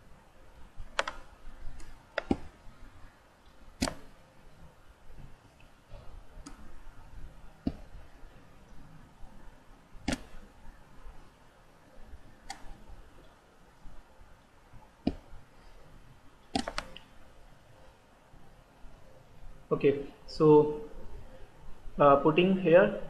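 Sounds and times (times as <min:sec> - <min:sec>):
computer mouse and keyboard clicks: 0:00.9 - 0:02.5, 0:03.8 - 0:04.1, 0:12.4 - 0:12.8, 0:16.5 - 0:17.1.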